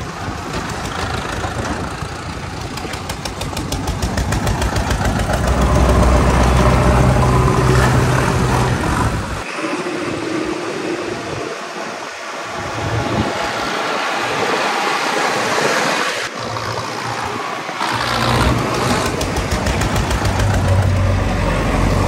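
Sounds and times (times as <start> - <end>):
heavy diesel engines rumbling: 0.0 - 9.6, 16.2 - 22.0
rushing wind-like noise: 0.0 - 22.0.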